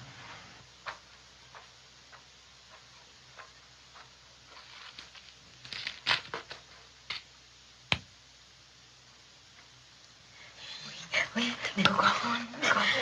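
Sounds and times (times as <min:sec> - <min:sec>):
faint clicks and rustles: 0:00.0 - 0:07.3.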